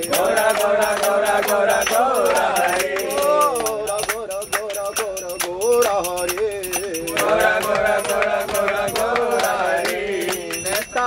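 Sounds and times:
hand claps: 0.0 - 11.0
men singing a chant: 0.0 - 11.0.

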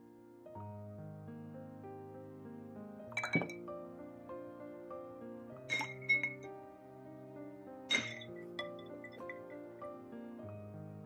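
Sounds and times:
soft background music: 0.0 - 11.0
ice cubes clinking in glass: 3.2 - 3.6, 5.7 - 6.5, 7.9 - 9.4.

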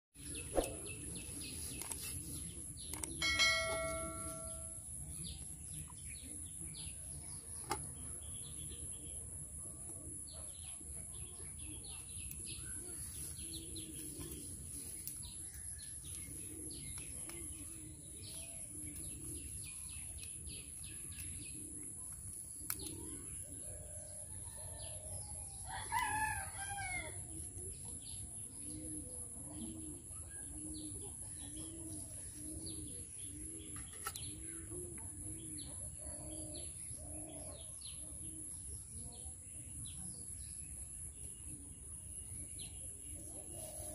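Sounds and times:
small birds chirping: 0.2 - 43.9
rooster crowing: 25.6 - 27.2.

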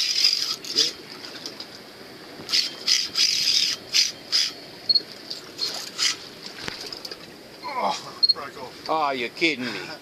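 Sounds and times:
fishing reel drag bursts: 2.5 - 4.6.

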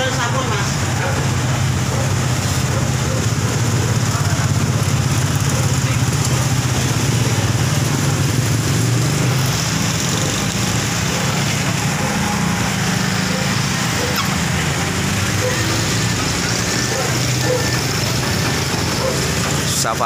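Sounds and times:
road traffic engines: 0.0 - 20.0
small motorcycle engines: 0.0 - 20.0.

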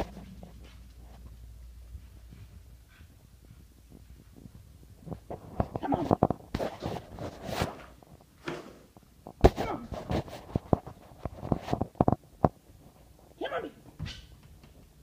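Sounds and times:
brief squeaks: 14.0 - 14.4.

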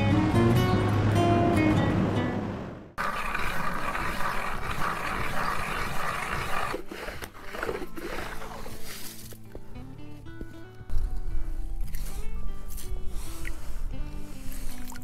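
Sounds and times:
ice auger grinding through ice: 3.0 - 9.4.

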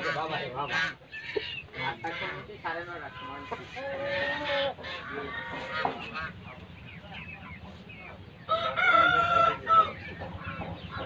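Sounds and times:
chickens chirping and clucking: 0.0 - 11.0
rooster crowing: 8.5 - 9.9.

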